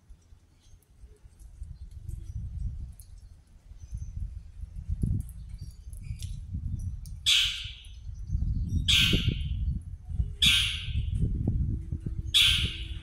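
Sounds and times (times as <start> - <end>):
steady low rumble: 4.0 - 13.0.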